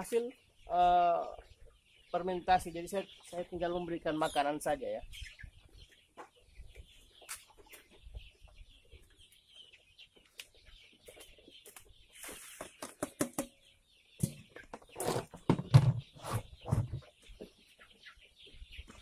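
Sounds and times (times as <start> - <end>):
chickens clucking: 0.0 - 19.0
knocks and rustling from plastic bins: 14.2 - 17.1.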